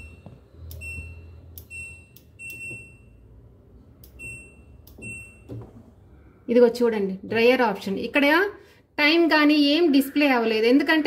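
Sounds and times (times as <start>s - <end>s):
washer control panel beeps: 0.0s - 3.3s, 4.0s - 5.6s.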